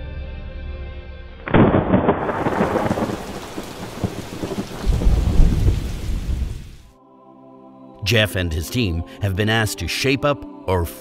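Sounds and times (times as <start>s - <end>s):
rolling thunder rumble: 1.5s - 6.8s
thunder crack: 1.5s - 6.8s
steady rain: 1.6s - 6.9s.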